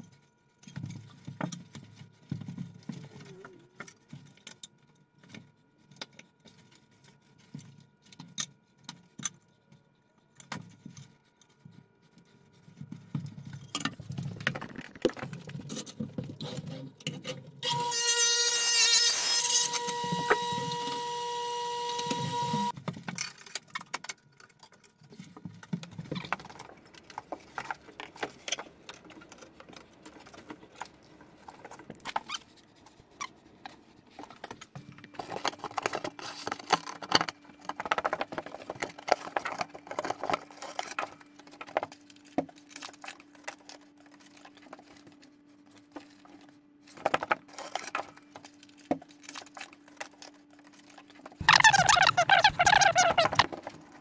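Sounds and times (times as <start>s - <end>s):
electric motor whining: 17.6s - 22.7s.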